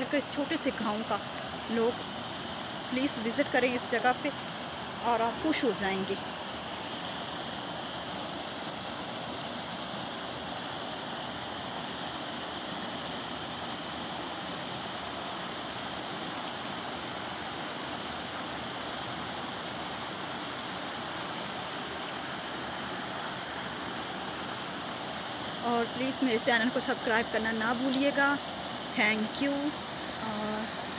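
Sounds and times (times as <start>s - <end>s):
waterfall pouring over rocks: 0.0s - 30.9s.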